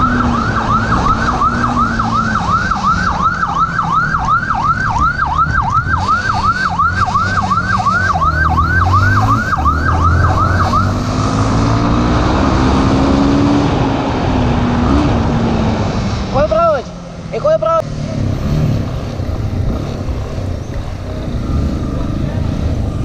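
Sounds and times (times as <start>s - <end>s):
police siren yelping: 0.0s - 11.9s, 21.3s - 23.0s
motorcycle engine: 0.0s - 23.0s.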